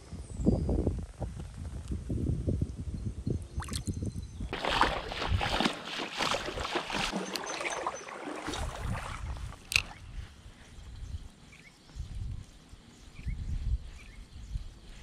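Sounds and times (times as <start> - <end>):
boots splashing through water: 4.5 - 10.0.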